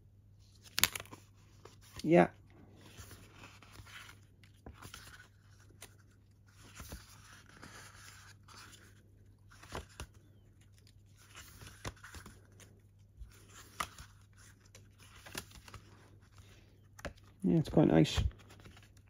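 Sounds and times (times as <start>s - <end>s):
paper pages rustling: 2.7s - 19.0s.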